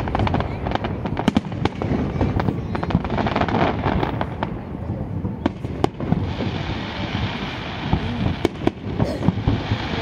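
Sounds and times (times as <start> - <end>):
sharp firework bangs: 0.0 - 10.0.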